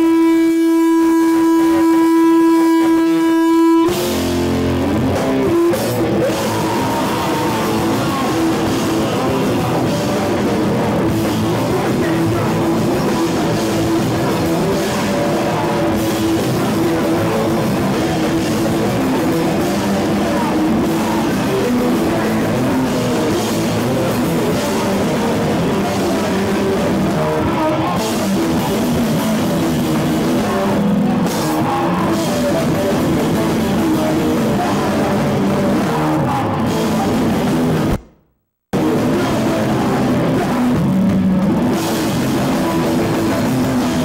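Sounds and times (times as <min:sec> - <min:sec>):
live rock band playing: 0:00.0 - 0:38.0, 0:38.8 - 0:44.0.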